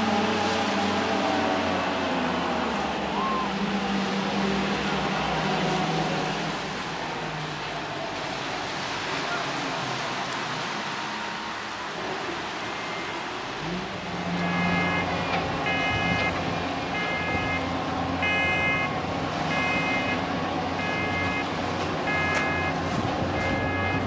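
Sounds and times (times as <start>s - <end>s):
warning beeper: 14.4s - 16.3s.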